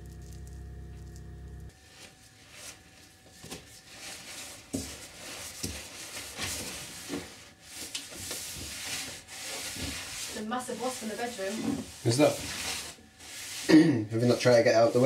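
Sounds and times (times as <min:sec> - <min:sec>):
paper towel rubbing on wood: 0:03.8 - 0:15.0.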